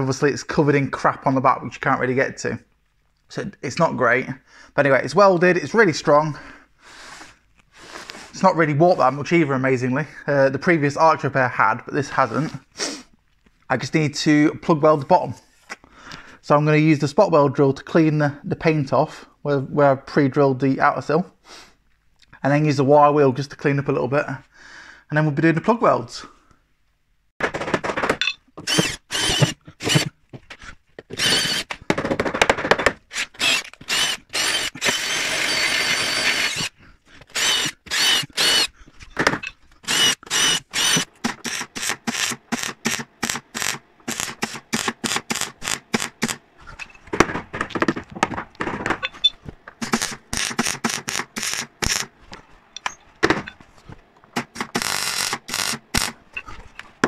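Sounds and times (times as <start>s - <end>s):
drill bit squealing on steel: 28.6s - 30.0s, 31.1s - 31.7s, 33.1s - 36.7s, 37.4s - 38.7s, 39.8s - 41.6s
welder crackling: 33.1s - 38.7s, 39.8s - 46.5s, 49.6s - 52.2s, 54.3s - 56.3s.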